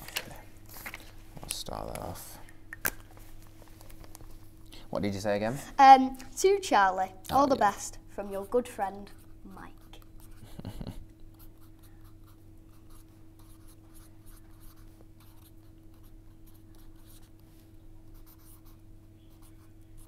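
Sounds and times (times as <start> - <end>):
steady low hum: 0.0 - 20.0
pen scratching on paper: 11.4 - 17.3, 18.1 - 20.0.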